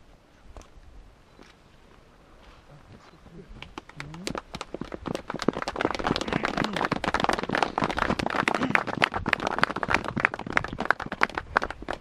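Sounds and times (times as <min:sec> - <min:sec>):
crowd applauding: 0:03.7 - 0:12.0.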